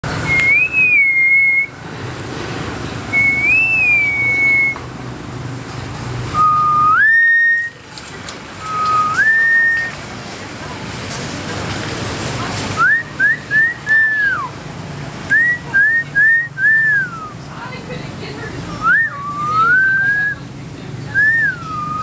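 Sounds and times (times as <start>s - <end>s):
myna whistling: 0.2s - 1.7s, 3.1s - 4.8s, 6.4s - 7.8s, 8.6s - 9.9s, 15.3s - 17.4s, 18.8s - 20.4s, 21.2s - 22.0s.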